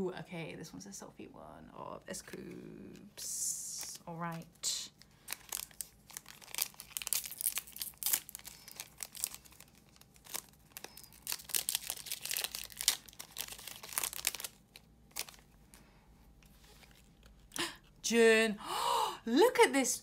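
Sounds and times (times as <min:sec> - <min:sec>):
wrapper crinkling and tearing: 0:03.6 - 0:15.8.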